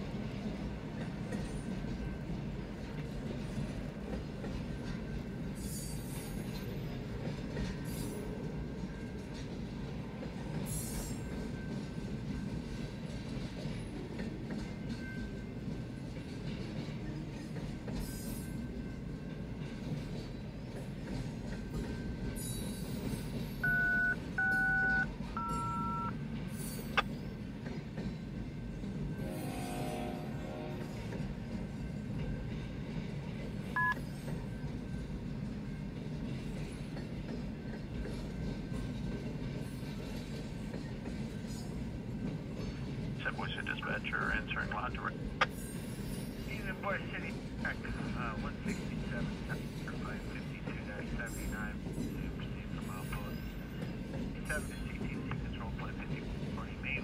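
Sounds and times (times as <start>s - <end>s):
train cars rumbling past: 0.0s - 57.0s
two-tone beeps: 23.6s - 26.1s.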